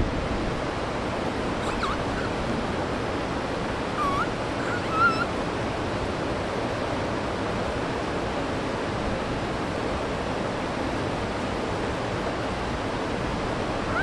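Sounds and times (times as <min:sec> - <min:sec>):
flowing river water: 0:00.0 - 0:14.0
high-pitched animal calls: 0:01.6 - 0:02.4, 0:04.0 - 0:05.3, 0:13.8 - 0:14.0.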